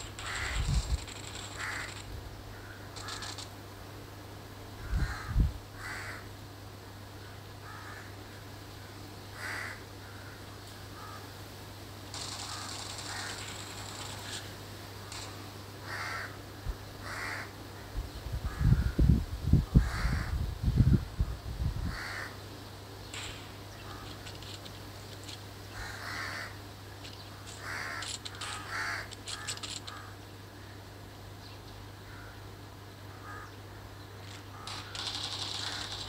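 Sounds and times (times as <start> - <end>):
harsh bird calls: 0.0 - 3.6, 12.2 - 19.0, 23.0 - 30.8, 33.0 - 36.0
steady low hum: 0.0 - 36.0.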